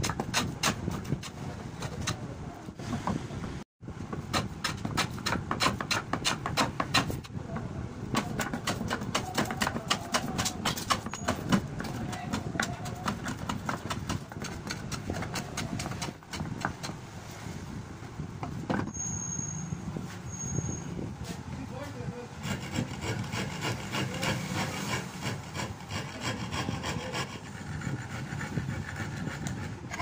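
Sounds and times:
rapid wooden knocking: 8.1s - 16.9s.

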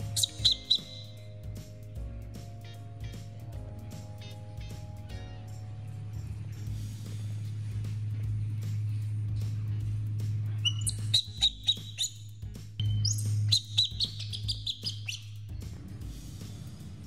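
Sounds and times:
baby monkey squeaking: 0.0s - 1.3s, 10.6s - 15.5s
background music: 0.0s - 17.0s.

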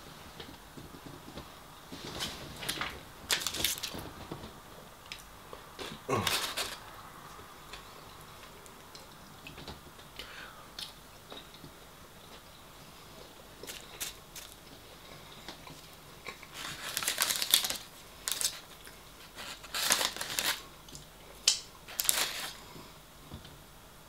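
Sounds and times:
paper wrapping crinkling: 2.0s - 4.1s, 5.8s - 6.8s, 13.6s - 14.6s, 16.4s - 20.7s, 21.9s - 22.6s.

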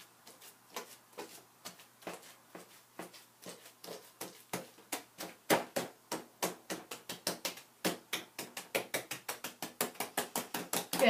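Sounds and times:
hands patting wet wool: 0.0s - 11.0s.

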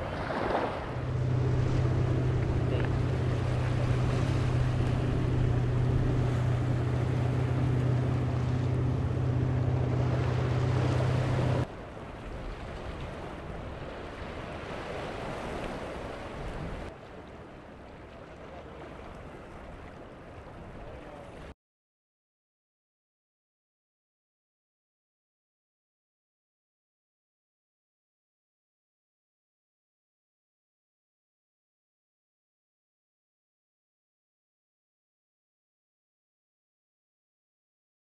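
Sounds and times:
engine humming: 0.0s - 11.7s
surf: 0.0s - 21.5s
wind: 0.0s - 21.6s.

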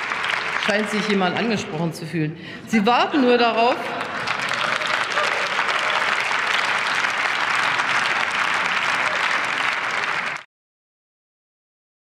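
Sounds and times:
crowd applauding: 0.0s - 1.8s, 3.4s - 10.5s.

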